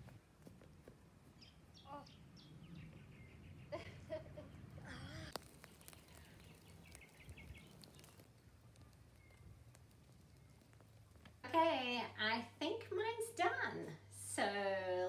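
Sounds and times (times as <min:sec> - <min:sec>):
distant birds chirping: 0:00.0 - 0:11.5.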